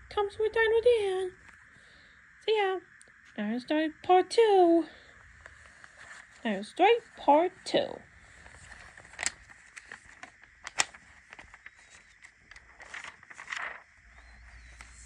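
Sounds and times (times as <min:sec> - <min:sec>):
rustling: 0:05.3 - 0:06.5, 0:08.2 - 0:15.0.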